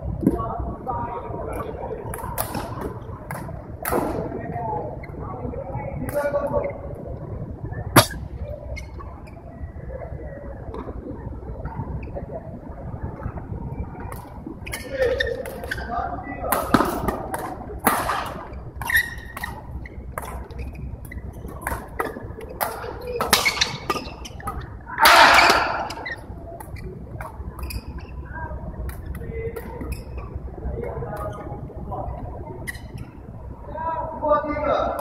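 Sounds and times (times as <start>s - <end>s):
faint voices: 0.0s - 18.8s
racket striking shuttlecock: 21.5s - 26.0s.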